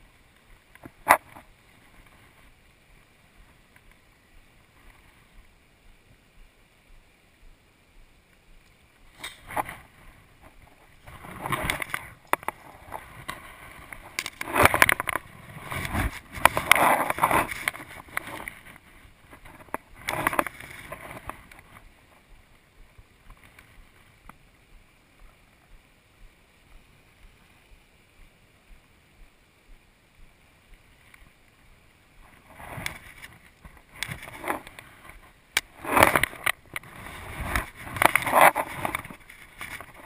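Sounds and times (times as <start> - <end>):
faint river flow: 0.0 - 40.0
close rustling and scraping: 0.6 - 5.4, 9.1 - 24.4, 32.2 - 40.0.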